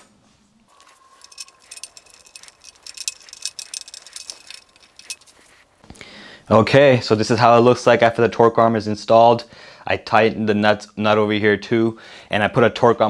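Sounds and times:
small metal hardware clicking: 0:00.8 - 0:05.6.

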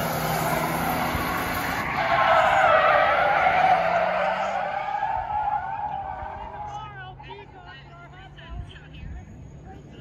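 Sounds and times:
tires squealing: 0:00.0 - 0:07.6.

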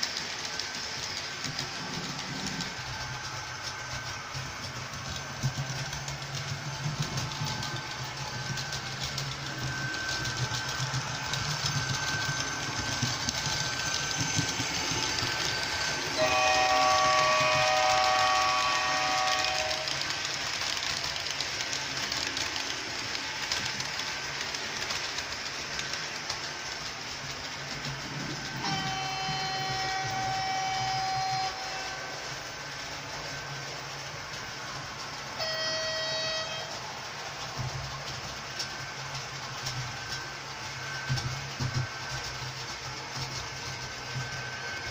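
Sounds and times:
model train running: 0:00.0 - 0:44.9
train horn chord: 0:16.1 - 0:19.9, 0:28.6 - 0:32.1, 0:35.4 - 0:36.8.

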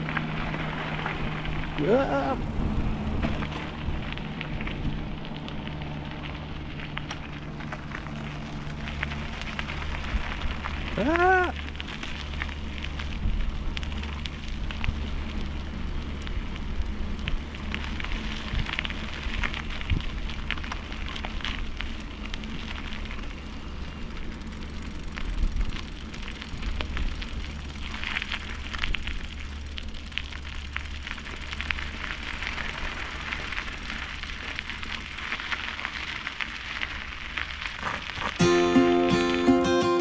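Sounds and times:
wind rumbling on microphone: 0:00.0 - 0:38.4
bicycle tyres rolling on track: 0:00.0 - 0:39.5
acoustic guitar music: 0:38.4 - 0:40.0.

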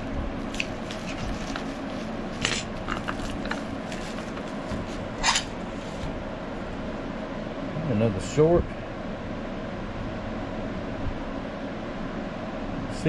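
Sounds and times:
steady background hum: 0:00.0 - 0:13.0
plastic wrapping crinkling: 0:00.4 - 0:06.2.

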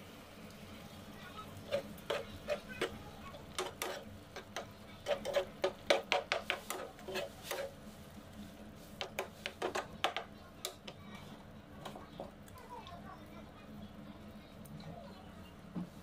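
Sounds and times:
metal spoon scraping frying pan: 0:01.6 - 0:07.8.

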